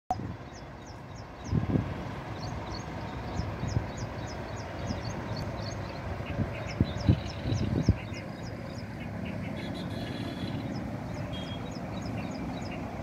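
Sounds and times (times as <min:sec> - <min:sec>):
distant traffic rumble: 0:00.1 - 0:13.0.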